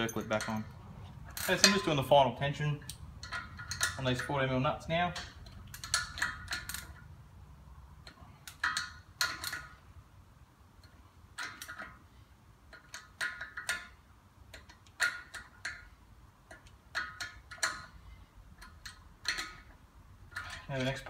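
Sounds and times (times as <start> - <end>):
socket ratchet clicking: 5.3 - 7.1.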